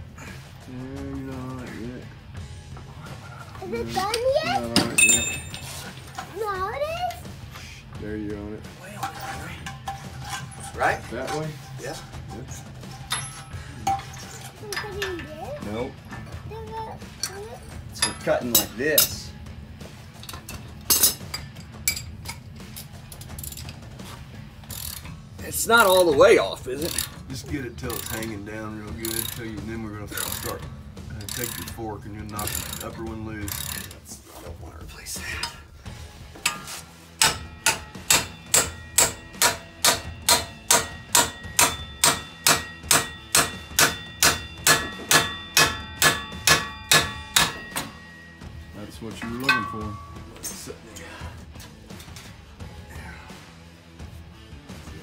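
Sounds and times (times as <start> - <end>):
metal tools clinking: 3.2 - 6.4, 8.8 - 16.5, 17.2 - 19.3, 20.1 - 23.9, 25.8 - 34.1, 36.4 - 51.0
hammer blows on steel: 36.5 - 48.4.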